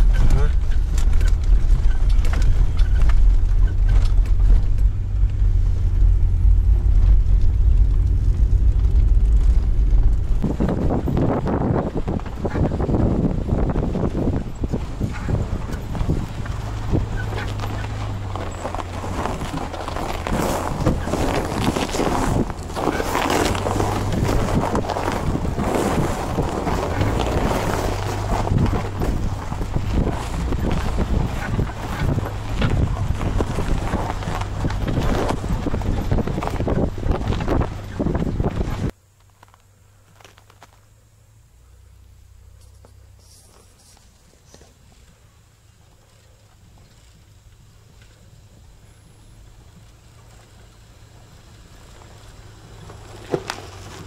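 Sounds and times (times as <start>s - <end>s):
irregular clatter: 0.0s - 40.9s
engine and road rumble: 0.0s - 54.0s.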